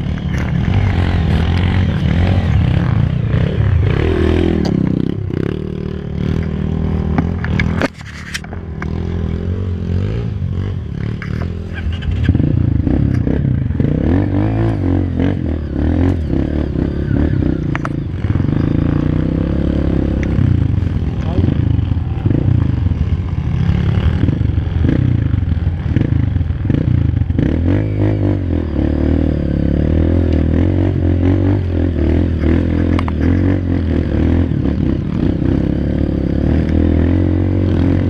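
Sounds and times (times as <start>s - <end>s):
motorcycle engine revving: 0.0s - 38.0s
knocks and rattles of bike: 6.2s - 9.2s, 11.0s - 13.8s, 32.2s - 33.8s.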